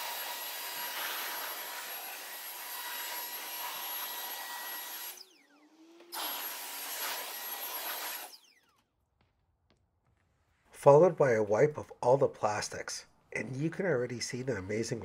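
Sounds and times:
electric blower running: 0:00.0 - 0:08.9.

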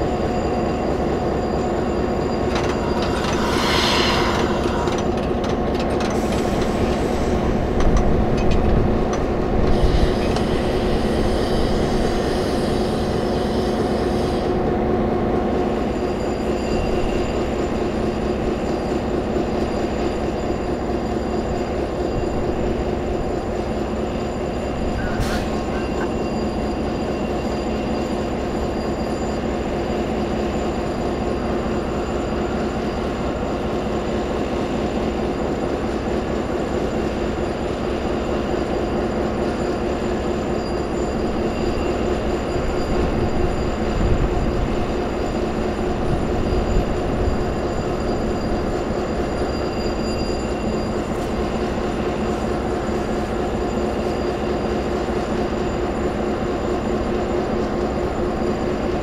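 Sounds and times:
deep low rumble: 0:02.6 - 0:06.0.

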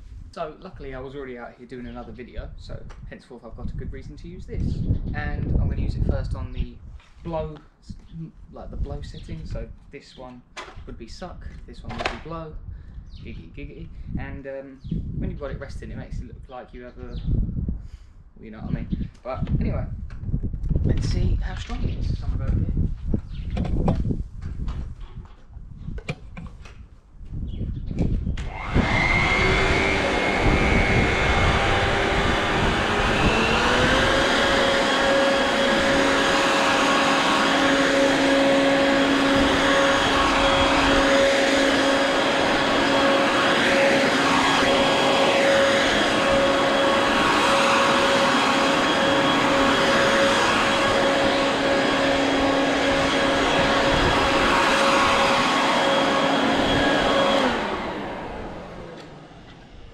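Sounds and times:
electric blower motor whine: 0:28.0 - 0:59.9.

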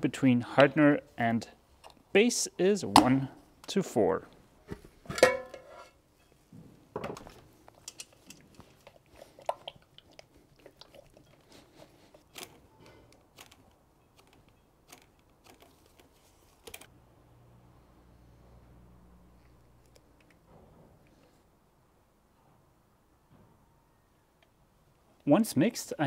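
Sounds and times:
metal paint tins knocking: 0:05.1 - 0:05.6.

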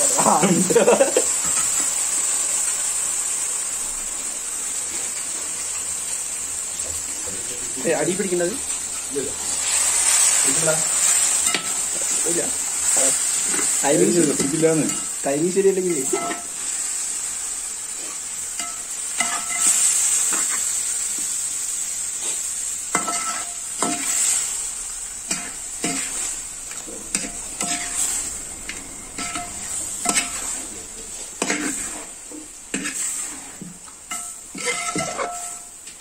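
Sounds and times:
curry sizzling: 0:00.0 - 0:36.0
ladle scraping metal pot: 0:34.1 - 0:35.6.

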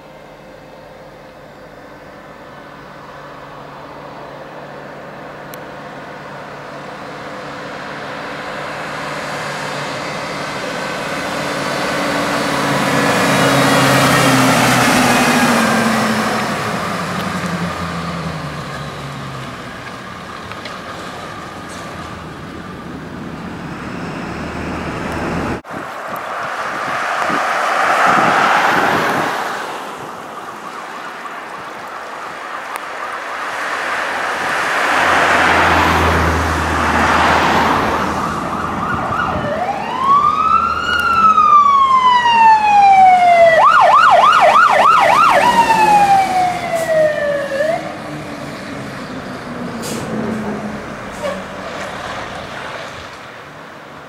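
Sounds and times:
truck engine: 0:00.0 - 0:54.0
vehicles passing: 0:00.0 - 0:54.0
fire engine siren: 0:05.8 - 0:25.9, 0:26.8 - 0:52.3.

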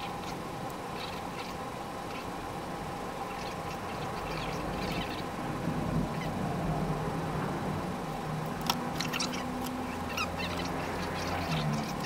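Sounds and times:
small ticks: 0:08.5 - 0:12.0.

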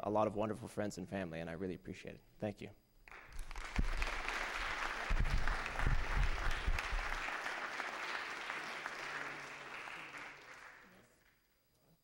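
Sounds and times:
audience applauding: 0:03.1 - 0:11.3.

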